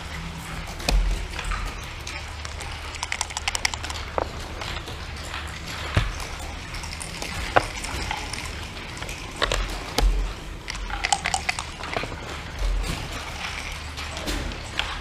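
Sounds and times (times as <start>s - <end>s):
checkers and dice clacking on board: 0.9s - 5.0s, 5.9s - 13.8s.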